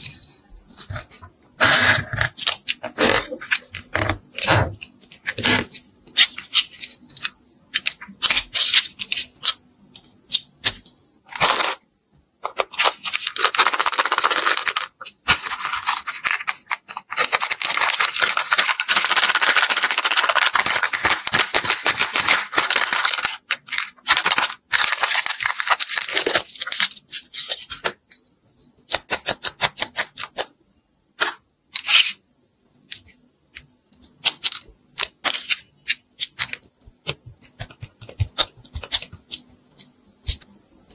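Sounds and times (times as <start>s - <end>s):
clay tearing: 28.8s - 30.5s, 32.9s - 40.6s.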